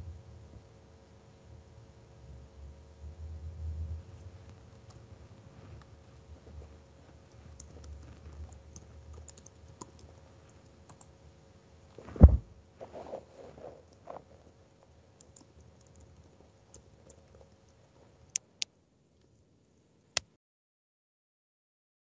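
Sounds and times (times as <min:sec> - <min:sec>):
keyboard typing: 0:07.2 - 0:11.2, 0:15.2 - 0:18.5
loud dull thump: 0:12.1 - 0:12.5.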